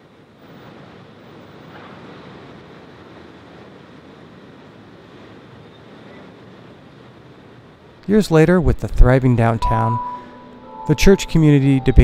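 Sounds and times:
street traffic hum: 0.0s - 12.0s.

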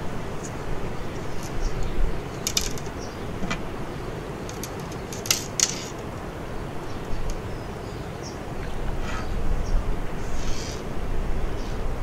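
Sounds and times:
fishing line rustling: 0.4s - 3.0s, 4.4s - 6.2s
metal tackle clicking: 2.4s - 3.6s, 4.5s - 6.1s.

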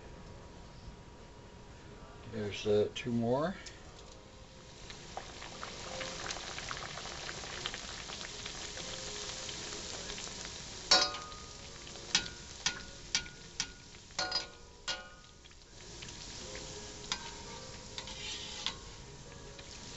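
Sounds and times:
dough sizzling in hot oil: 4.3s - 19.9s
wire skimmer clinking on pan: 10.9s - 15.5s, 17.0s - 19.0s.

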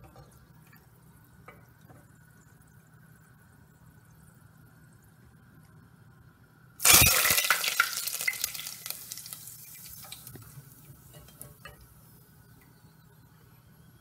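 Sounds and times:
hot oil sizzling and crackling: 6.8s - 12.3s.

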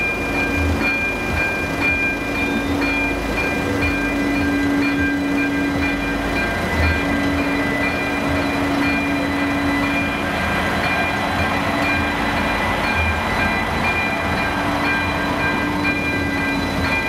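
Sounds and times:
diesel locomotive rumbling past: 0.0s - 17.0s
level crossing warning bell: 0.0s - 17.0s.

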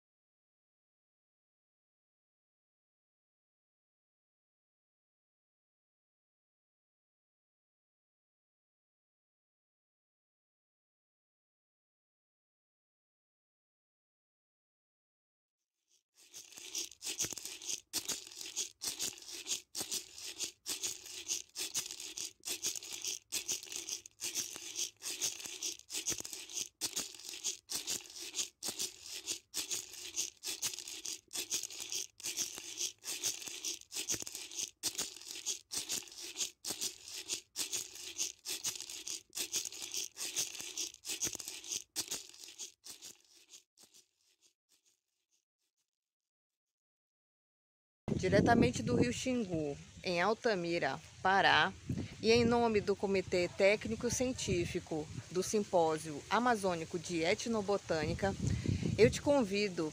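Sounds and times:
rhythmic rattle shaking: 16.2s - 44.0s.

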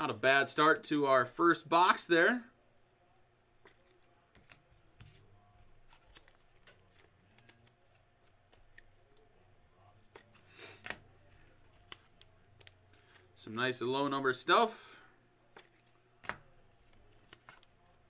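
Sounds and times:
trading cards rustling and clicking: 3.4s - 9.3s, 10.0s - 13.6s, 15.4s - 18.0s.

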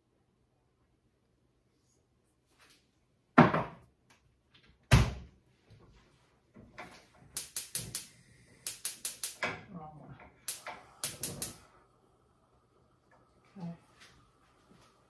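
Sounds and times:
gas burner igniter clicking: 7.2s - 9.6s, 10.4s - 11.8s.

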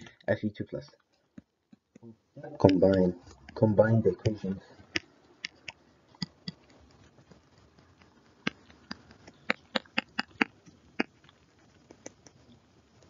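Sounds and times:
stylus tapping on tablet: 7.6s - 10.5s.

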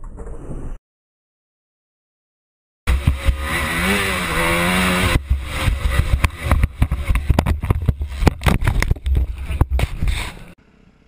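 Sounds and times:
dirt bike engine at high revs: 2.9s - 10.6s
rapid irregular knocks and buffets: 2.9s - 10.6s
wind noise on microphone: 5.1s - 10.5s.

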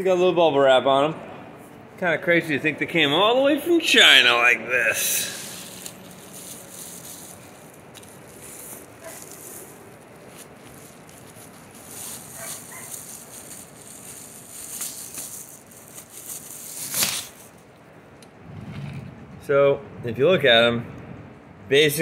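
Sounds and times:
bubble wrap rustling and crinkling: 4.8s - 17.7s.

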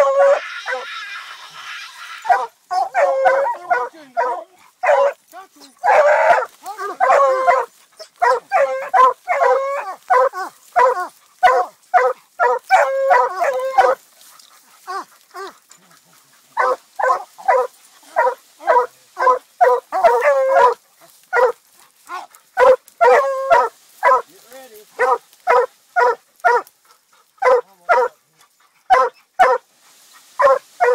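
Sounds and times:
hunting dog barking: 2.2s - 28.2s, 28.8s - 29.7s, 30.4s - 30.9s.

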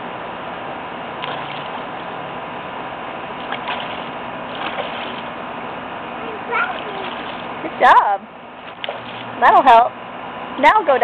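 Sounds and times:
hands splashing water: 3.4s - 5.4s, 6.8s - 7.5s, 8.7s - 9.4s.

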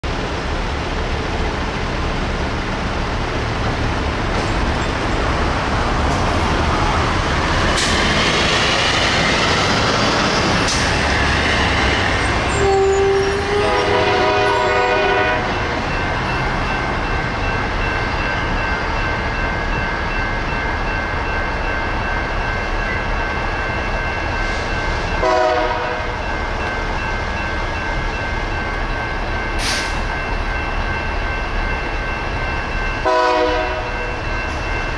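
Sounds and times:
road traffic noise: 0.0s - 34.9s
locomotive horn blasts: 12.5s - 15.6s, 25.2s - 26.2s, 33.0s - 34.0s.

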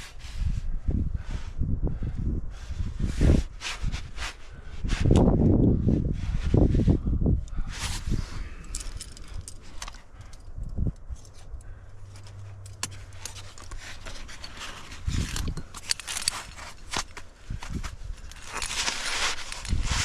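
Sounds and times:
climbing hardware clinking on rock: 7.5s - 20.0s
clothing rustle: 11.1s - 20.0s.

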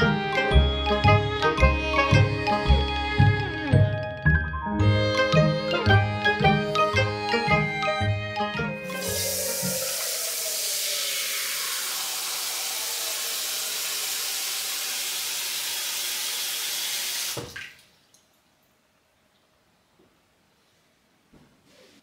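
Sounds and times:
faucet water into metal pot: 8.8s - 17.8s
faucet knock: 9.0s - 9.9s.

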